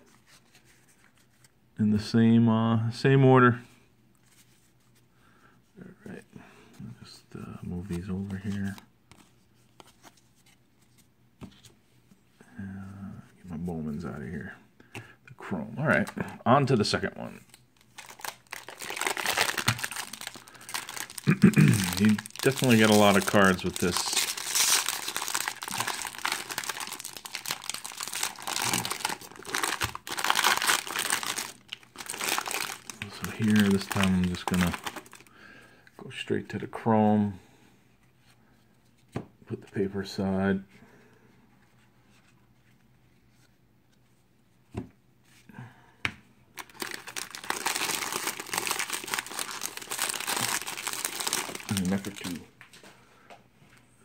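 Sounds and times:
foil wrapper crinkling: 17.5s - 35.3s, 46.6s - 52.4s.

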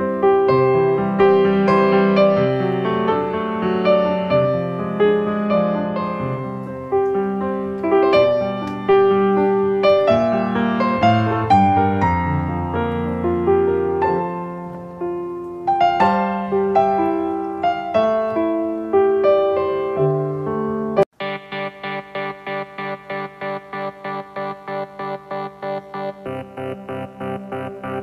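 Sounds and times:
piano music: 0.0s - 28.0s.

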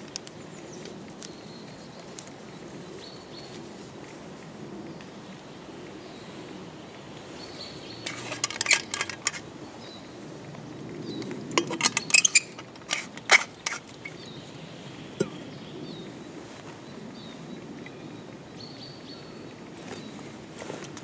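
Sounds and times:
small hard objects clinking: 8.1s - 9.4s, 11.6s - 14.1s.

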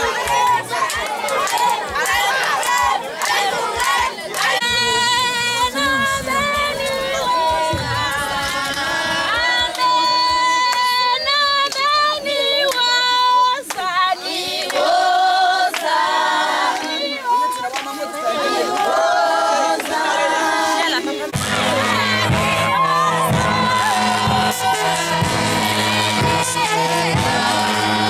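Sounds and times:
hand clapping: 0.0s - 4.7s, 7.5s - 12.0s, 13.6s - 13.9s, 14.6s - 14.9s, 15.7s - 16.0s
women singing together: 0.0s - 28.0s.

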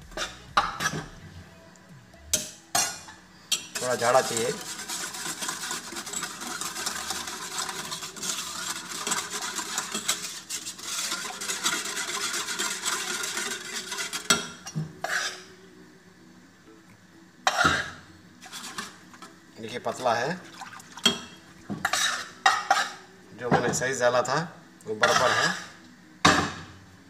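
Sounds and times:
spoon stirring and scraping pan: 0.0s - 1.2s, 2.4s - 15.6s, 17.5s - 19.4s, 21.0s - 23.8s, 24.9s - 25.8s.

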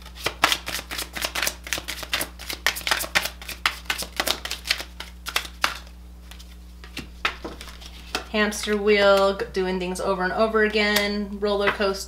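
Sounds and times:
playing cards being shuffled: 0.0s - 8.8s.

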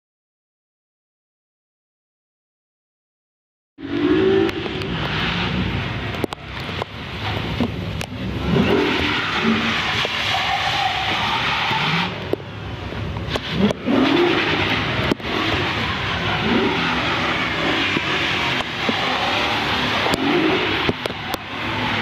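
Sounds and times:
tyres hissing on wet pavement: 3.9s - 22.0s
car engine revving hard: 8.2s - 12.2s, 13.3s - 22.0s.

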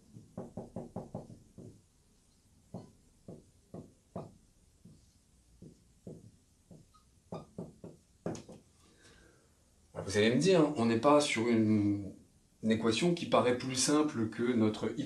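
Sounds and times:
marker pen writing on whiteboard: 0.0s - 8.7s.

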